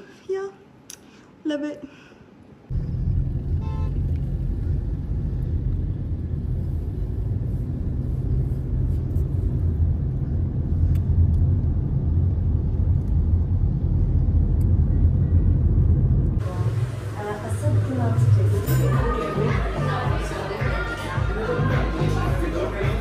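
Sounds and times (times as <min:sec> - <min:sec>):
car engine and road noise: 0:02.7 - 0:19.0.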